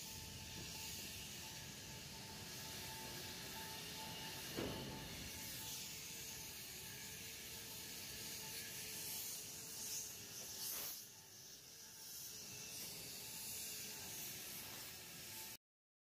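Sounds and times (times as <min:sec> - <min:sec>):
faint wavering machine hum: 0:00.0 - 0:10.5
steady high hiss: 0:00.0 - 0:15.6.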